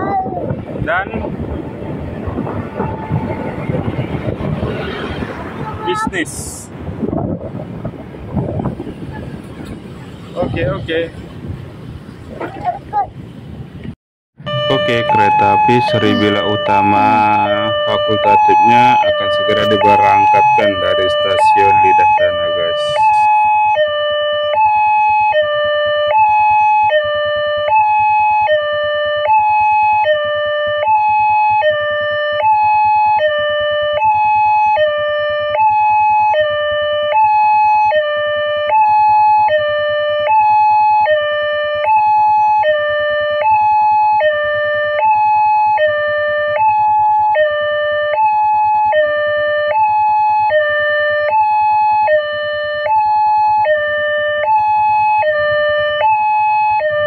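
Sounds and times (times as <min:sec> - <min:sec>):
level crossing two-tone alarm: 0:14.5 - 0:57.0.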